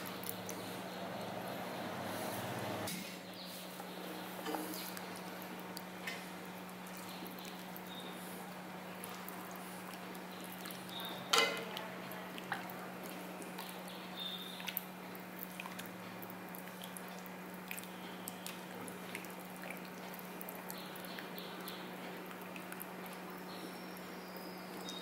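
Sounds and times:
steady low hum: 0.0s - 3.3s
thick syrup popping and squelching: 9.0s - 23.5s
ladle knocking against pan: 11.3s - 11.6s.

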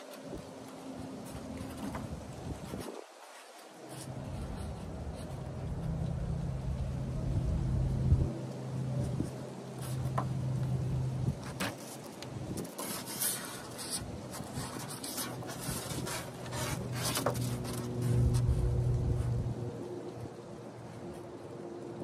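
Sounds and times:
low vehicle hum: 4.1s - 11.6s, 14.0s - 21.0s
tape measure scraping foam board: 11.4s - 19.4s.

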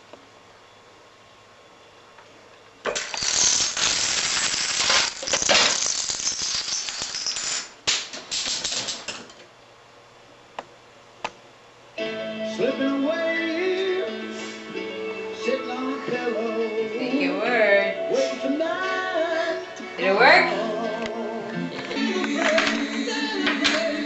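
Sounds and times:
dominoes clattering: 2.9s - 9.2s
music with singing: 12.0s - 24.0s.

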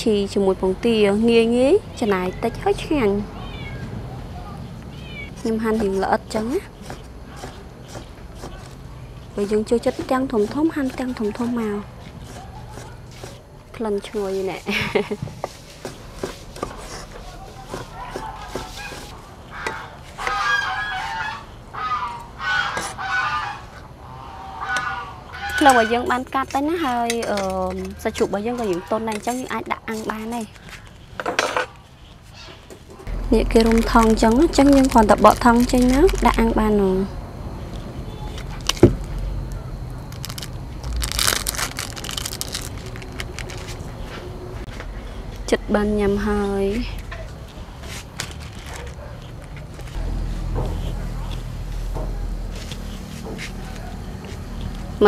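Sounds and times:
loud honking bird calls: 18.1s - 26.1s
plastic wrap crinkling: 33.3s - 36.6s, 38.2s - 44.2s, 47.8s - 50.0s.

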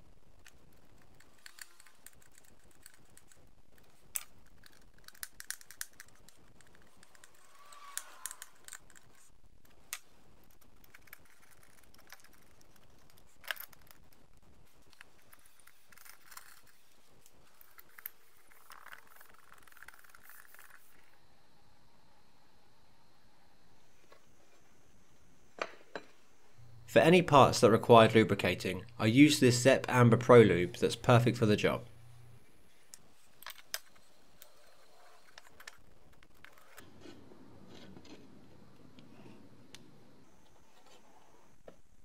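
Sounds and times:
small metal parts clicking: 4.1s - 9.2s.

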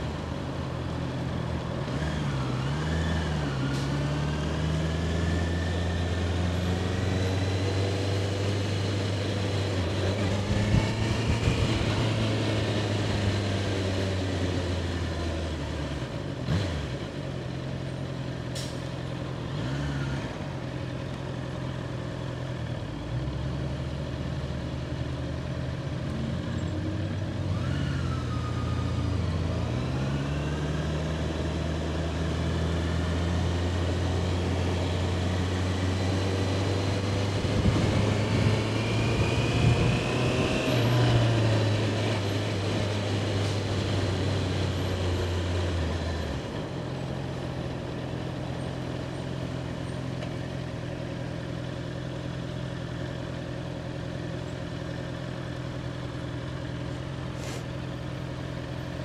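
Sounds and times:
motorcycle engine running: 44.0s - 59.0s.

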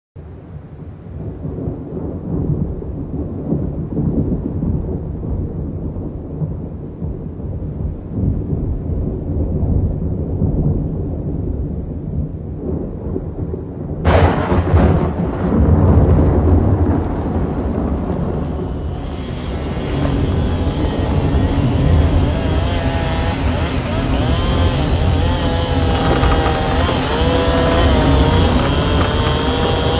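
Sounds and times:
thunder rumbling: 0.3s - 29.9s
sudden harsh noise: 16.6s - 29.9s.

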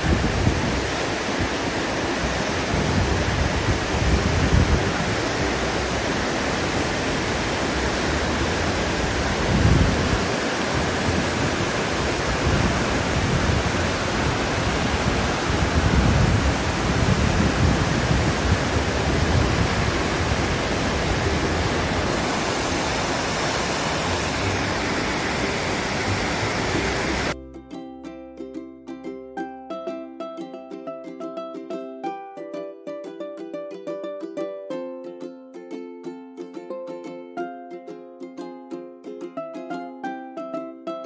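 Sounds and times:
waterfall rushing: 0.0s - 27.4s
wind buffeting microphone: 0.0s - 27.4s.

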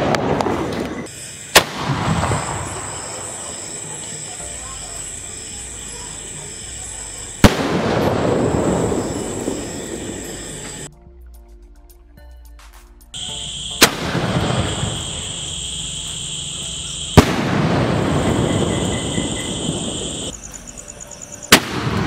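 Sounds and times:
firework shell bangs: 13.7s - 15.4s, 17.1s - 20.2s.

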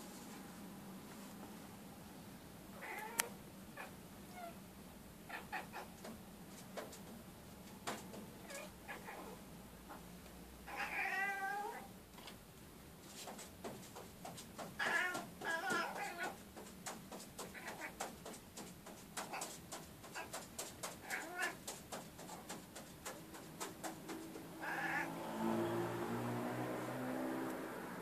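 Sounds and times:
cat meowing: 2.8s - 4.6s, 10.7s - 11.9s, 14.8s - 16.4s, 21.0s - 21.6s, 24.6s - 25.1s.

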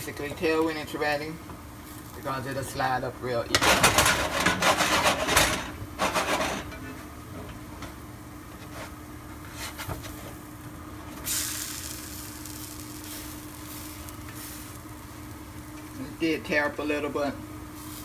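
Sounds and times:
oil sizzling: 9.9s - 18.0s.

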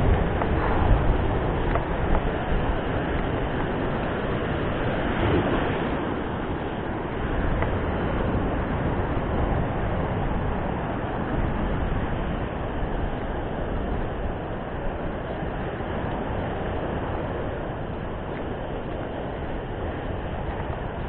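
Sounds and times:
surf breaking on rocks: 0.0s - 21.0s
wind buffeting microphone: 0.0s - 21.0s.

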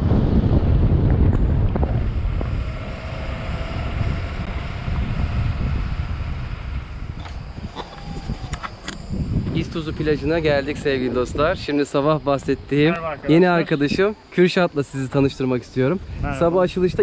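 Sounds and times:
car driving rumble: 0.0s - 11.4s
wind buffeting microphone: 0.0s - 14.3s, 14.9s - 17.0s.

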